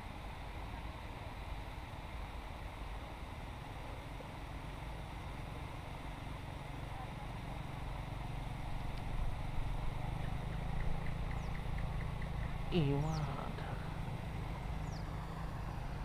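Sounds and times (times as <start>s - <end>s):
motorcycle engine passing: 9.1s - 16.0s.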